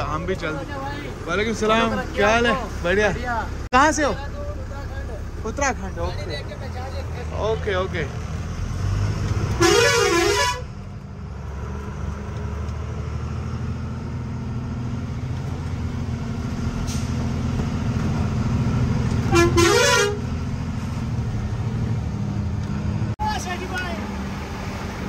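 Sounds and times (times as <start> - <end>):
multi-tone truck horn: 9.5 - 10.7, 19.3 - 20.4.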